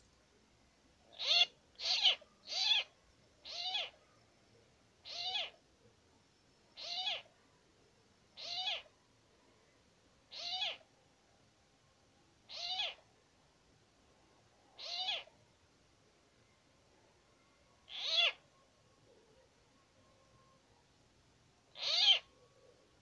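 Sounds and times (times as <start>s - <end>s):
animal mewing: 1.2s - 4.0s, 5.1s - 5.6s, 6.8s - 7.3s, 8.4s - 8.9s, 10.3s - 10.8s, 12.5s - 13.0s, 14.8s - 15.3s, 17.9s - 18.4s, 21.8s - 22.2s.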